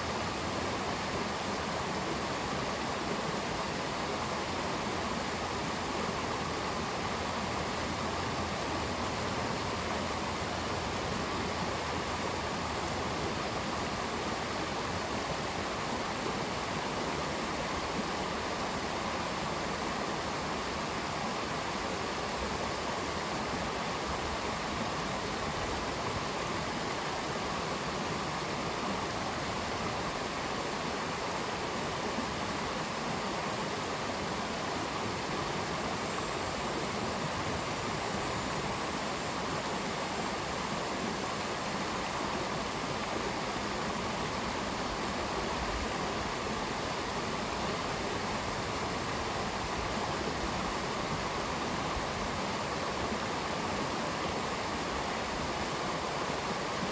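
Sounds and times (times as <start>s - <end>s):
stream rushing over stones: 0.0s - 56.9s.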